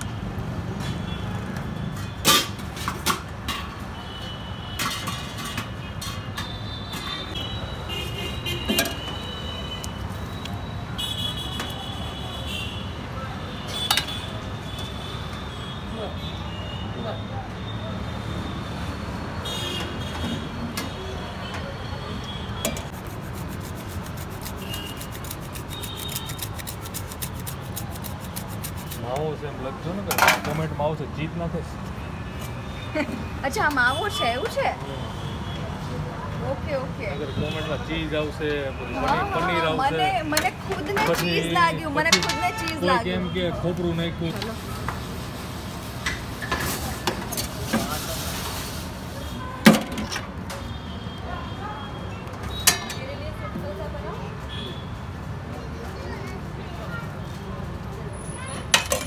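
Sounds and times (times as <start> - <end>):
traffic rumble: 0.0 - 59.0
grater scraping cheese: 22.9 - 29.2.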